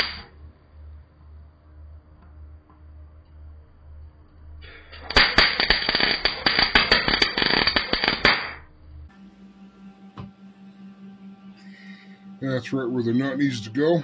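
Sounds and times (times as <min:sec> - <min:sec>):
welding arc crackling: 0:00.0 - 0:00.3, 0:04.6 - 0:08.7.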